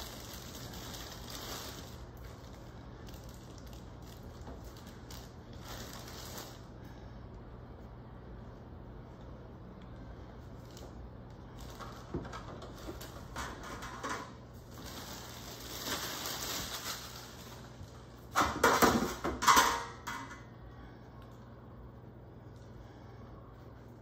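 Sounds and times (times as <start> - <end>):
bread crust crackling: 0.0 - 6.7
plastic bag rustling: 0.0 - 6.7, 10.6 - 18.8.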